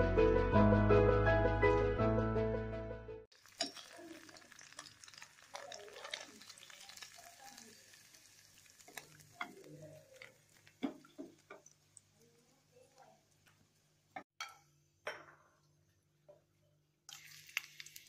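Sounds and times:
cheese sizzling in butter: 0:03.3 - 0:14.3, 0:17.1 - 0:18.0.

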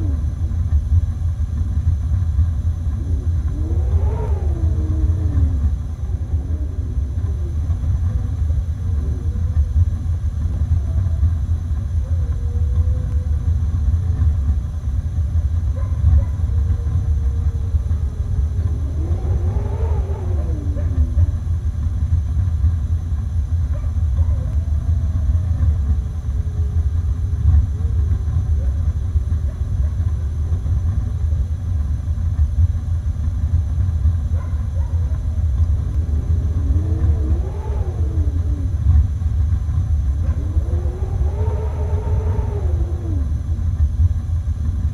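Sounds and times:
deep rumble of wind: 0:00.0 - 0:44.9
wolves howling: 0:02.6 - 0:14.4, 0:15.7 - 0:21.8, 0:23.7 - 0:28.9, 0:34.4 - 0:44.1.

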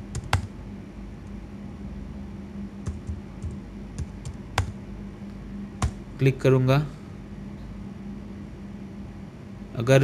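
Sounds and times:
steady low hum: 0:00.0 - 0:10.0
keyboard keys clicking: 0:00.1 - 0:00.5, 0:02.8 - 0:04.8.

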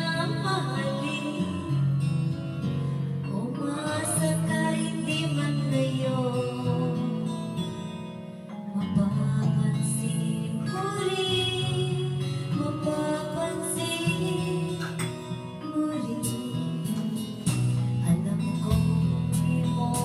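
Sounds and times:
woman singing into a microphone: 0:00.0 - 0:20.0
backing music: 0:16.1 - 0:20.0.

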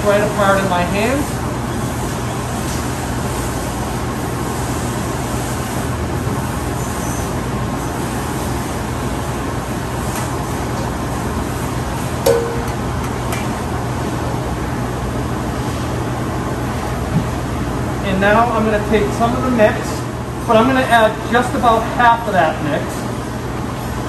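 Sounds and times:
short clink: 0:12.3 - 0:13.2.

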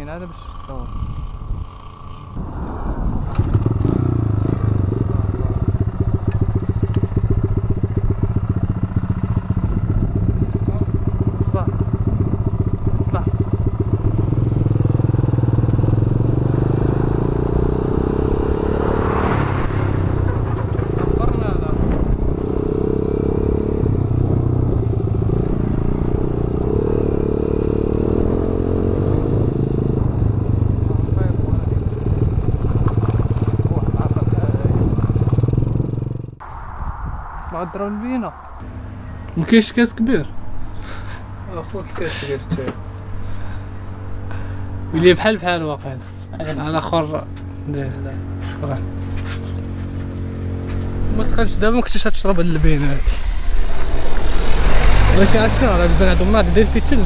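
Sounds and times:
motorcycle engine idling: 0:00.0 - 0:02.4, 0:04.8 - 0:16.4, 0:38.6 - 0:51.8
motorcycle engine revving: 0:00.0 - 0:36.4, 0:38.6 - 0:57.0.

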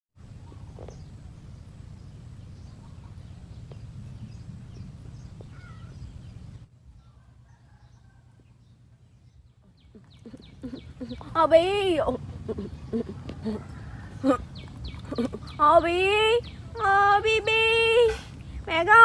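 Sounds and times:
low rumble: 0:00.2 - 0:07.3
bird chirps and calls: 0:02.0 - 0:08.2, 0:09.1 - 0:19.0.

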